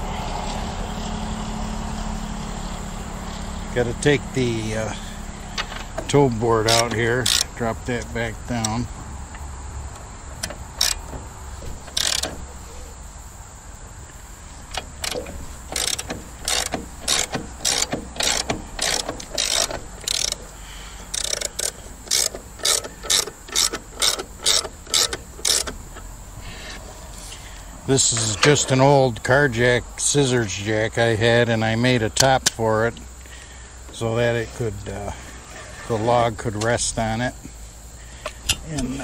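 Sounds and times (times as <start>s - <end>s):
ratchet mechanism clicking: 5.6s - 8.8s, 10.0s - 12.5s, 14.6s - 26.1s.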